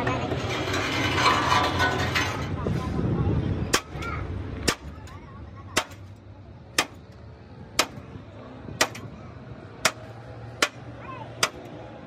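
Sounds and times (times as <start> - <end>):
hammer striking steel: 6.8 - 7.0, 7.8 - 8.0, 8.8 - 9.1, 9.8 - 11.7.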